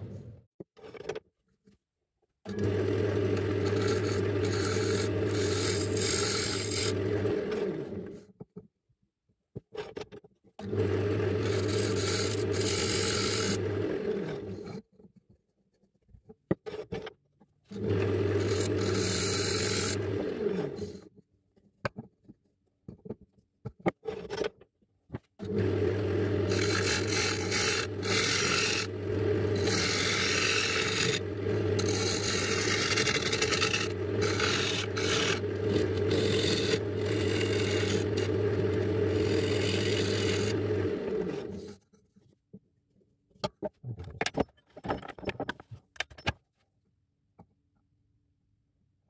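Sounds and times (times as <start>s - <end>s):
lathe motor humming: 2.5s - 7.9s, 10.9s - 14.1s, 25.5s - 41.6s
tool scraping spinning wood: 2.5s - 8.2s, 10.6s - 14.8s, 17.7s - 21.1s, 25.4s - 41.8s.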